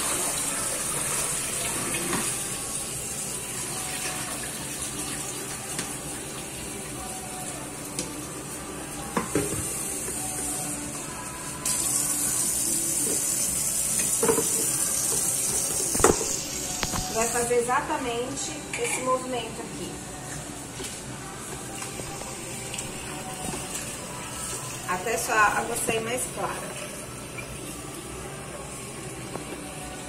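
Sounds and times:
tap water running into metal sink: 0:00.0 - 0:02.6, 0:12.9 - 0:17.2.

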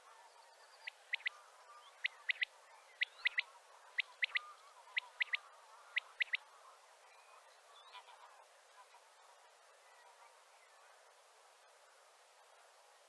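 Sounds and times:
quail singing: 0:00.8 - 0:06.7.

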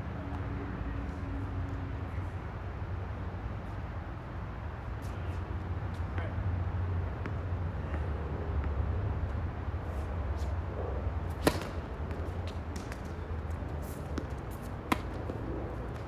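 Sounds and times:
tennis ball bouncing: 0:07.1 - 0:08.8, 0:11.3 - 0:16.0
racquets striking tennis ball: 0:11.2 - 0:16.0.

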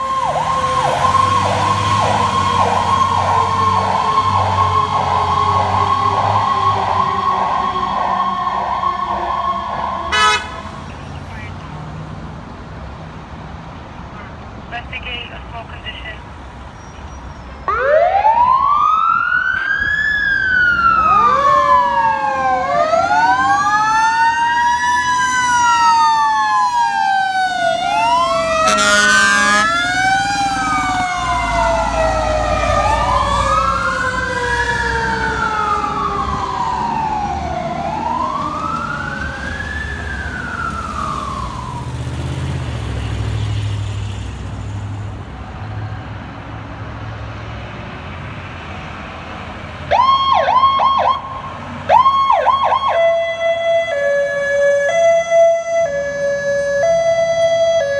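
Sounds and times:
second siren sliding down: 0:00.0 - 0:10.5, 0:17.7 - 0:42.3, 0:49.9 - 0:57.9
fire truck siren wailing: 0:00.0 - 0:11.9, 0:17.6 - 0:47.5, 0:48.5 - 0:57.9
air horn blast: 0:10.1 - 0:10.7, 0:28.6 - 0:29.9.

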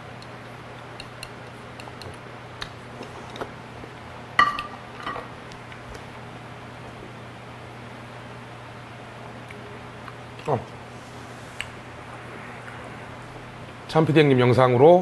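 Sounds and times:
chopsticks clicking on bowl: 0:01.0 - 0:02.7
ceramic bowl clinking on plate: 0:04.4 - 0:05.3.

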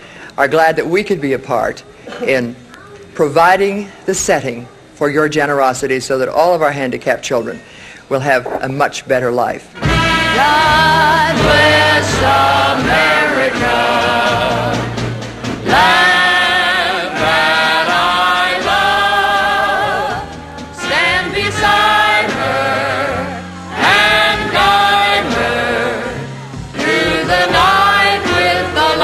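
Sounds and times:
instrumental backing: 0:09.7 - 0:29.0
choir singing: 0:09.8 - 0:29.0.

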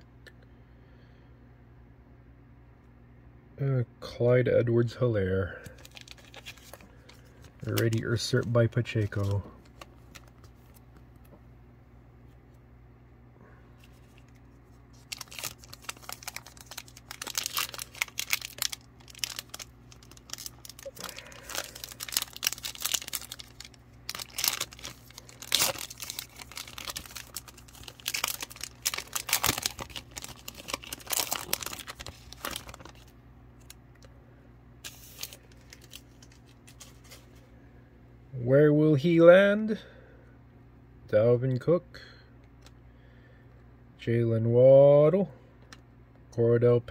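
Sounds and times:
foil wrapper crinkling: 0:05.6 - 0:10.8, 0:13.8 - 0:34.1, 0:34.8 - 0:37.5.

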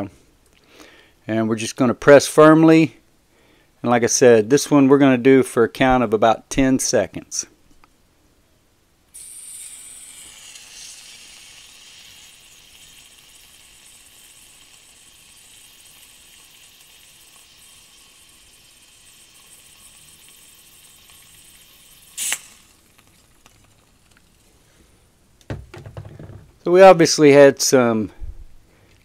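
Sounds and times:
butane gas hissing: 0:09.1 - 0:26.4.

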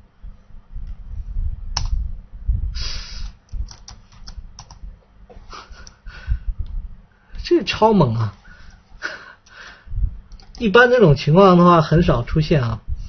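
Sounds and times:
typing on computer keyboard: 0:03.6 - 0:04.8, 0:10.3 - 0:10.7.

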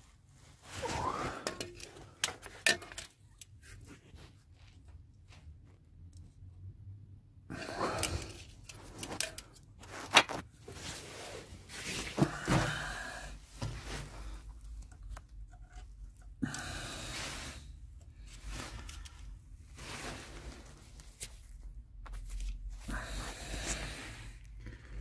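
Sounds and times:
scraping and rubbing: 0:07.7 - 0:12.5.

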